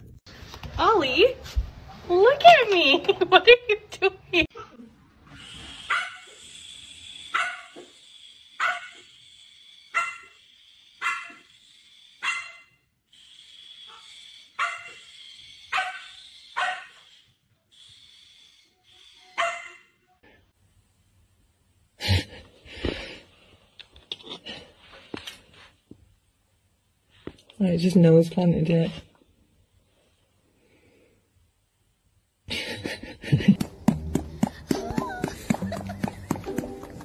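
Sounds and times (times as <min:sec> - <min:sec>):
puppy barking: 0:05.9 - 0:06.2, 0:07.3 - 0:07.8, 0:08.6 - 0:09.0, 0:09.9 - 0:10.3, 0:11.0 - 0:11.4, 0:12.2 - 0:12.7, 0:14.6 - 0:15.0, 0:15.7 - 0:17.0, 0:19.4 - 0:19.9.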